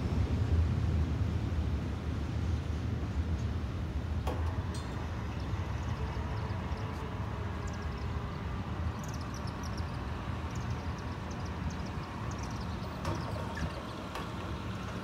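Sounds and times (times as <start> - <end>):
low outdoor rumble: 0.0 - 15.0
bird chirping: 4.6 - 15.0.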